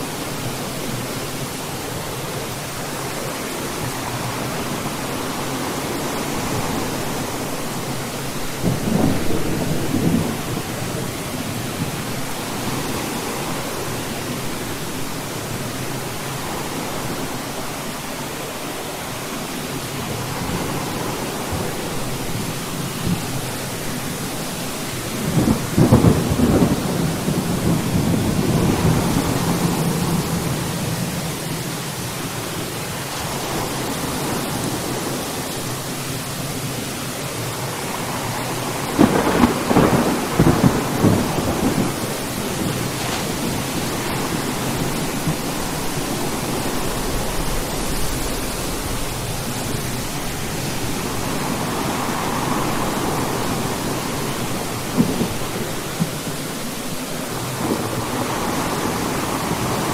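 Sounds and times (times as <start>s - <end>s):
rain hissing: 0.0s - 59.9s
thunder rolling: 38.3s - 56.3s.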